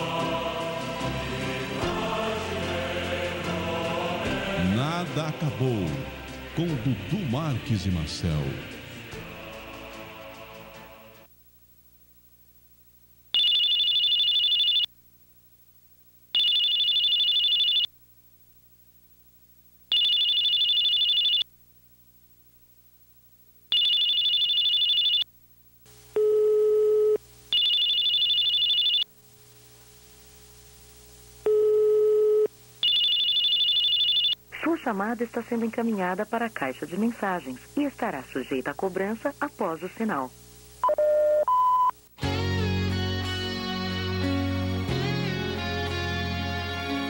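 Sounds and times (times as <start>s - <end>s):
ringback telephone tone: 13.3s - 14.9s, 16.4s - 18.0s, 19.9s - 21.5s, 23.7s - 25.3s, 26.2s - 29.1s, 31.4s - 34.4s, 40.8s - 42.0s
mobile phone electronic ringing: 13.4s - 14.9s, 16.4s - 17.9s, 19.9s - 21.5s, 23.7s - 25.3s, 26.2s - 29.1s, 31.4s - 34.4s, 40.8s - 41.9s.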